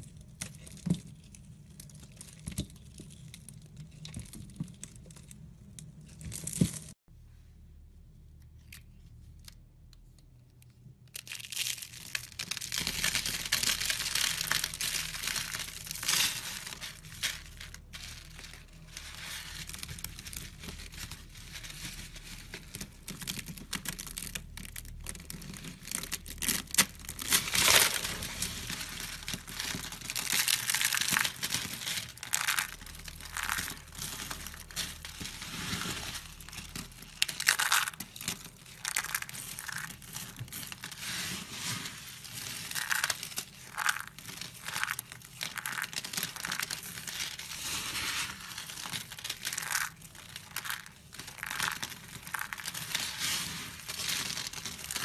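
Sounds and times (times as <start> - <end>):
hands crunching soap flakes: 11.0 - 55.0.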